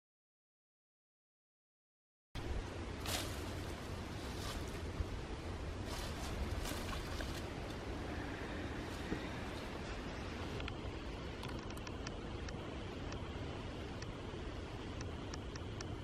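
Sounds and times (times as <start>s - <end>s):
wind rumble on microphone: 2.4s - 16.0s
faint rustles: 3.0s - 12.6s.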